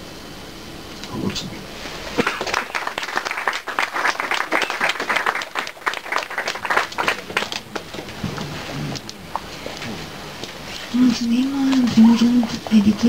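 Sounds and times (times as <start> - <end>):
audience applauding: 2.2 - 9.1.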